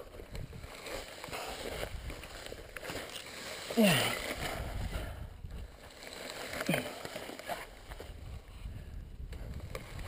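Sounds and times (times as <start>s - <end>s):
grass brushing against bike: 0.0s - 10.0s
person groaning with effort: 3.7s - 4.4s
wind on microphone: 4.3s - 5.8s, 7.9s - 10.0s.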